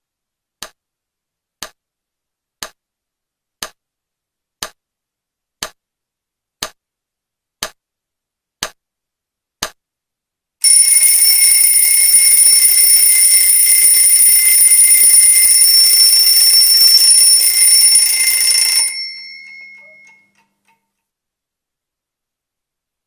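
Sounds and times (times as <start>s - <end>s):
alarm clock ringing: 10.6s - 20.4s.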